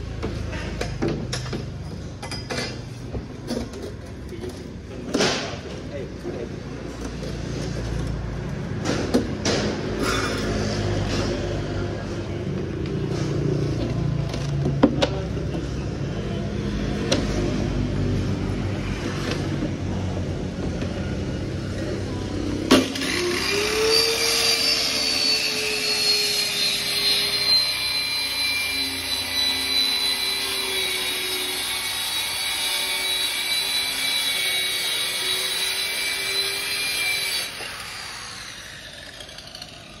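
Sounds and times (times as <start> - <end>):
circular saw cutting plywood: 22.7 - 40.0.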